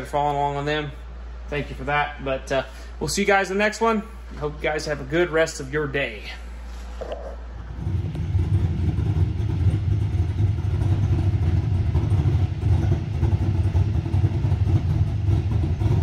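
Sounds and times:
engine deep rumble: 6.8 - 16.0.

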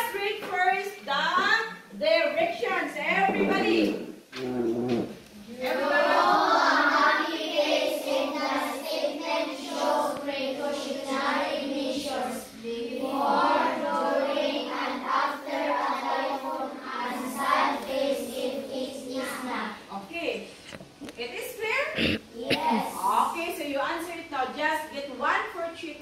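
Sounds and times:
children reading aloud in unison: 5.4 - 19.9, 22.3 - 23.7.

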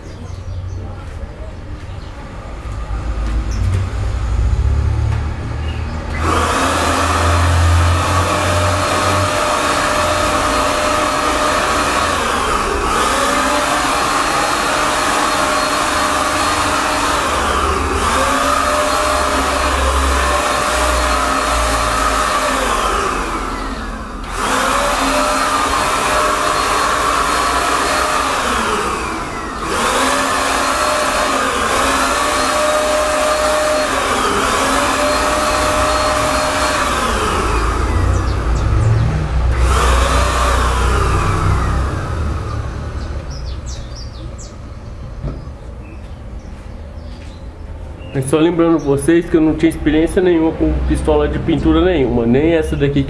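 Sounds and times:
paint spray gun motor whine: 6.0 - 44.6.

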